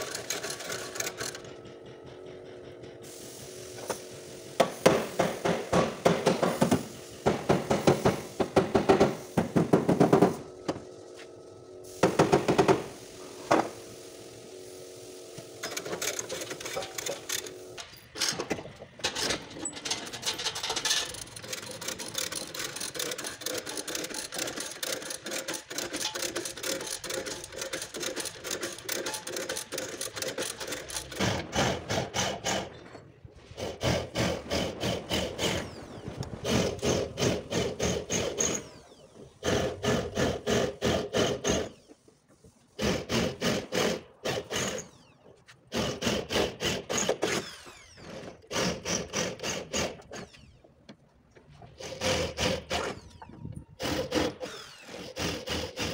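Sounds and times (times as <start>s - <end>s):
rattling and scraping metal: 15.6s - 38.8s.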